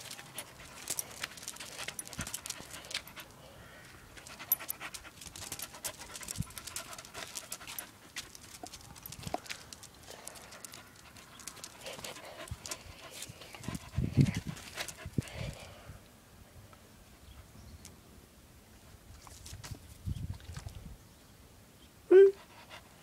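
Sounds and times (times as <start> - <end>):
dog panting: 0.0 - 3.4, 4.2 - 8.8, 10.0 - 15.6.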